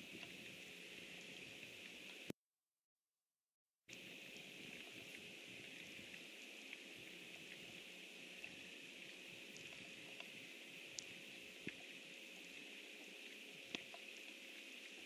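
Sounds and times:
faint ticks: 0.0s - 2.3s, 3.9s - 15.0s
low steady hum: 0.0s - 2.3s, 3.9s - 15.0s.

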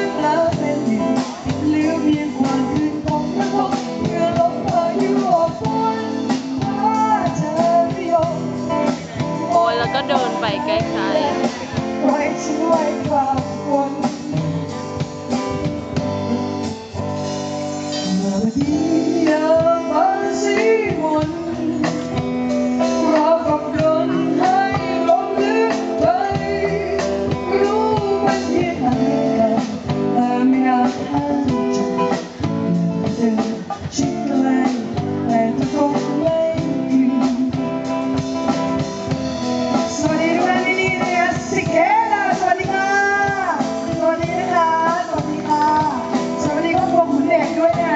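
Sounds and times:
person singing into a microphone: 0.0s - 15.6s, 17.9s - 47.9s
live band playing: 0.0s - 47.9s.

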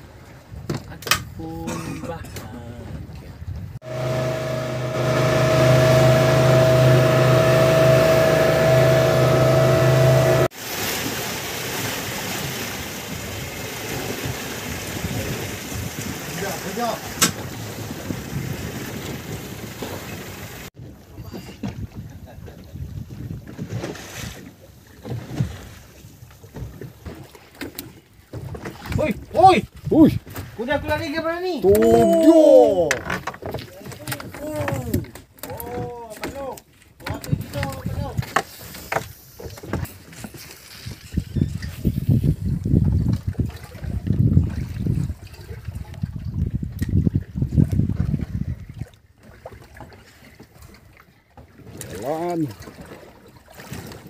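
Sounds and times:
wind buffeting microphone: 2.2s - 10.5s, 13.1s - 23.8s, 40.9s - 48.9s
water rushing past hull: 2.9s - 36.3s, 37.2s - 54.0s
boat engine running: 3.8s - 10.5s.

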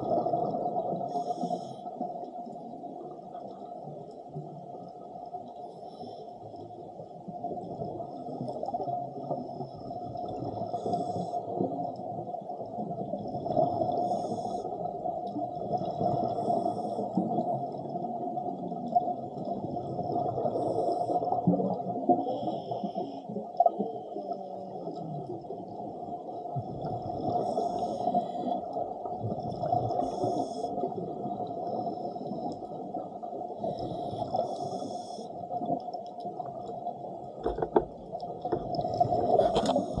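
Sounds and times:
diver exhaled bubbles gurgling: 0.0s - 1.4s, 12.8s - 23.8s, 24.4s - 34.8s, 35.5s - 40.0s
muffled underwater rumble: 0.0s - 40.0s.

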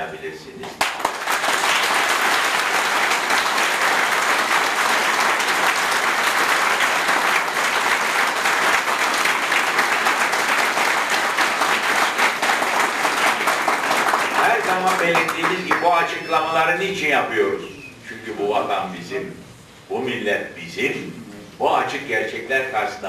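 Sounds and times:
audience applauding: 0.6s - 16.3s.

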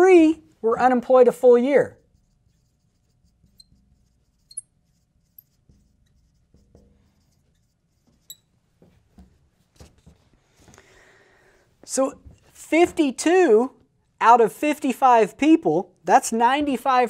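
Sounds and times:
marker squeaking on glass: 2.1s - 8.6s.

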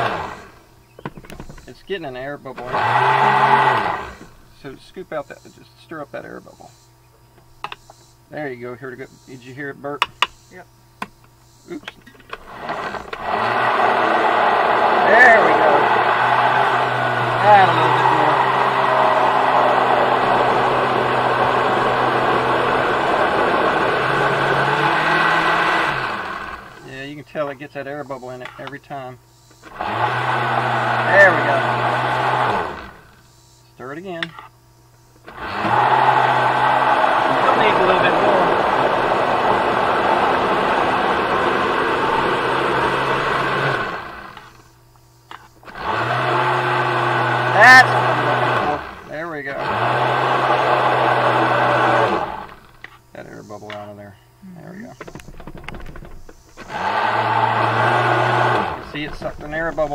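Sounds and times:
blender running: 0.0s - 0.6s, 2.6s - 4.4s, 12.3s - 27.0s, 29.6s - 33.2s, 35.2s - 44.6s, 45.6s - 52.8s, 56.6s - 59.9s.

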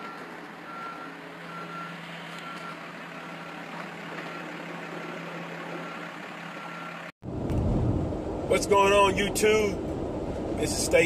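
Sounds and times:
vehicle backup alarm beeping: 0.0s - 7.1s
engine idling hum: 0.0s - 11.0s.

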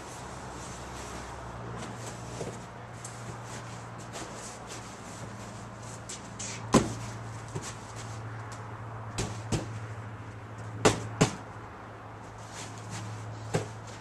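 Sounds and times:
cardboard knocks and thumps: 6.7s - 7.7s, 13.5s - 13.8s.

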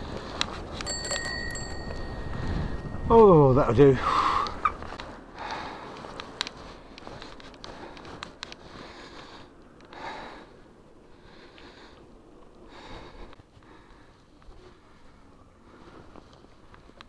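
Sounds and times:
person breathing hard: 4.0s - 4.6s, 5.2s - 16.7s.

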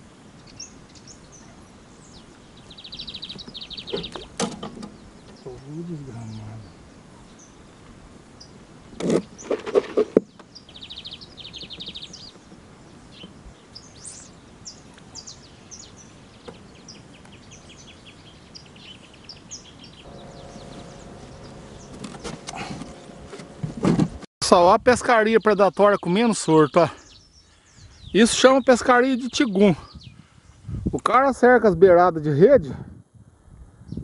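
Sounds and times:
birds chirping and trilling: 0.0s - 24.1s, 24.9s - 31.2s
low steady hum: 19.9s - 24.3s.

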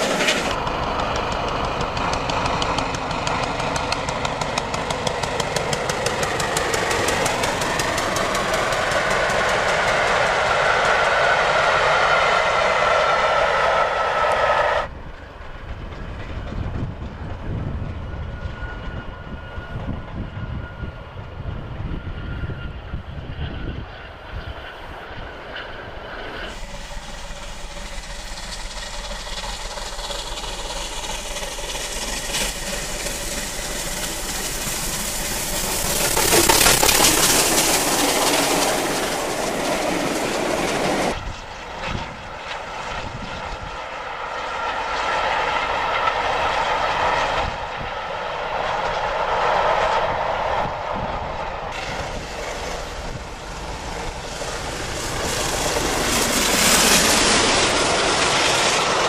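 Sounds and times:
steam locomotive running: 0.0s - 59.0s
steam train passing loudly: 0.0s - 59.0s
steam train rumbling past: 0.0s - 59.0s
steam hiss: 5.7s - 14.9s, 26.4s - 41.2s.

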